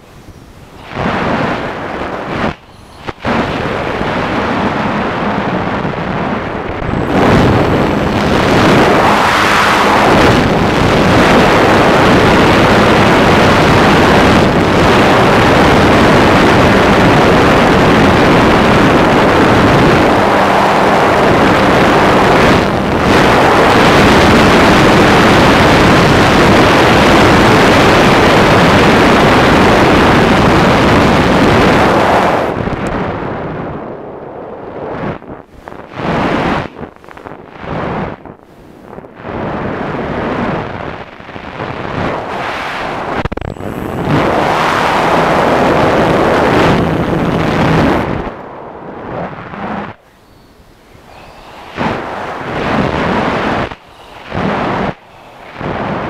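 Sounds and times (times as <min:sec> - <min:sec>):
wind rushing: 0:00.0 - 0:56.0
electric motor-driven propeller: 0:50.1 - 0:56.0.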